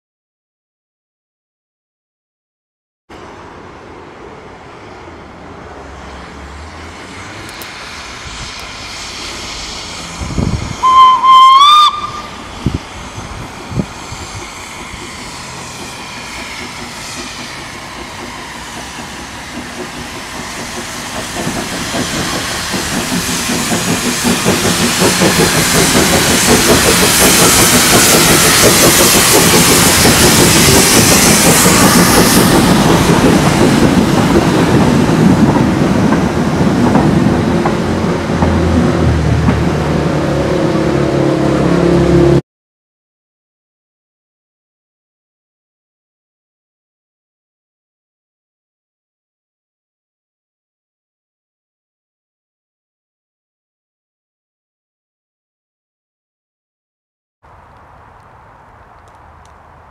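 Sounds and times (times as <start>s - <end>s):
steam locomotive whistle: 9.1s - 12.7s, 25.3s - 32.7s
locomotive exhaust beats: 10.2s - 41.7s
rumble and clatter of wagons: 18.3s - 41.1s.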